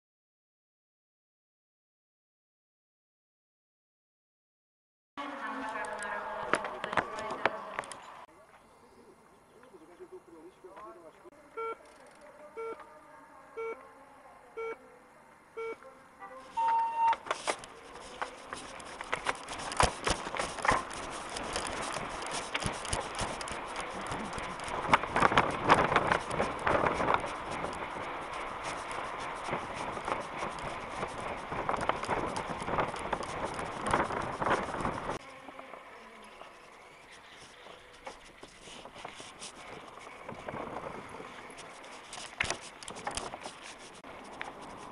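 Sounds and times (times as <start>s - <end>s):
short countdown beeps: 11.6s - 11.8s, 12.6s - 12.8s, 15.6s - 17.2s
long beep: 15.6s - 17.2s
bike tyre noise: 16.4s - 44.9s
bike rattling: 17.2s - 44.9s
wind on camera: 18.5s - 35.2s, 38.4s - 44.9s.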